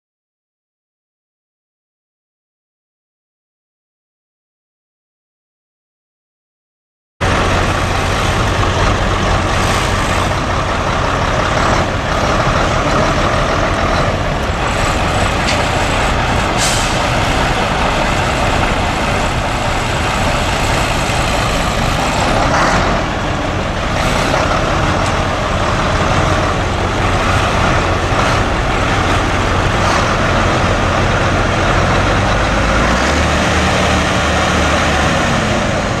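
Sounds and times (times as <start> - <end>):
diesel truck engine running: 7.2 - 36.0
brief hisses: 16.6 - 17.1.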